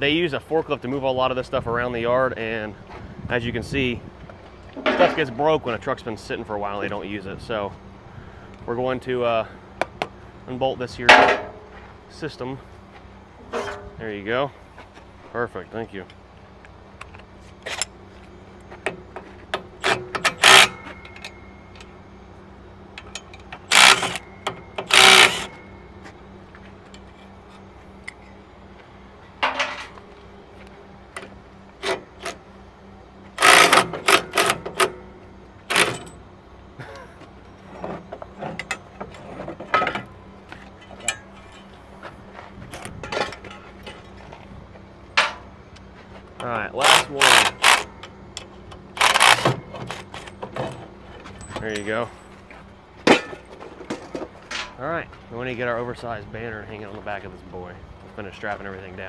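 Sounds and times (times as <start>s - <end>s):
metal clicks and clanks: 18.8s - 22.0s, 22.9s - 25.7s, 29.4s - 30.0s, 33.4s - 35.1s, 35.7s - 36.2s, 37.7s - 41.7s, 42.7s - 44.4s, 45.1s - 45.5s, 46.4s - 52.4s, 53.1s - 54.8s
impact wrench rattling bursts: 19.6s - 21.4s, 23.0s - 25.7s, 33.4s - 35.0s, 35.6s - 36.2s, 46.8s - 48.1s, 48.7s - 50.8s.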